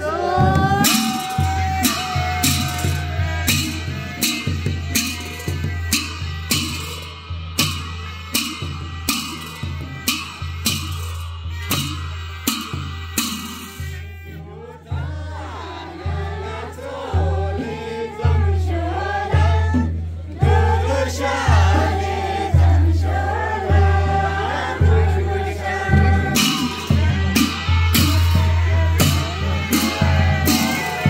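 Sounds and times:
person singing: 0.0 - 6.9, 23.1 - 31.0
deep drum beat: 0.0 - 31.0
sharp percussion hits: 0.4 - 14.3, 20.4 - 31.0.

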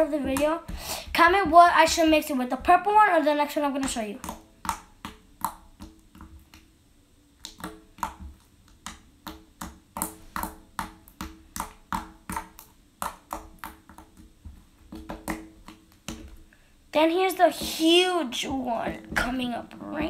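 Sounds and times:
slime clicking and popping: 3.8 - 6.7, 7.4 - 14.3.

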